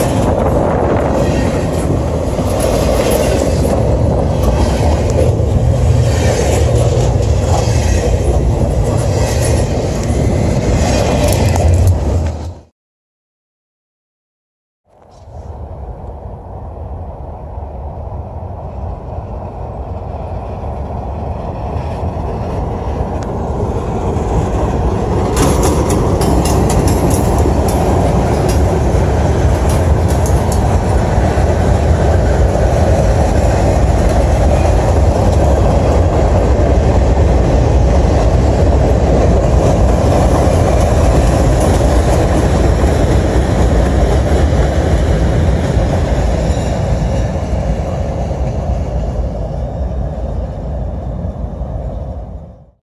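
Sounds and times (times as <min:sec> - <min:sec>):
train wheels clicking: 0:00.0 - 0:12.5, 0:24.0 - 0:49.0
freight train rumbling past: 0:00.0 - 0:12.7, 0:15.0 - 0:52.8.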